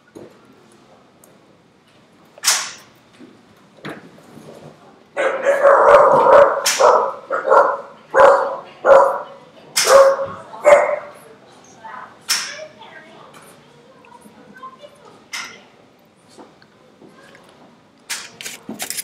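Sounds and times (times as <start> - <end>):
puppy barking: 5.2 - 11.2.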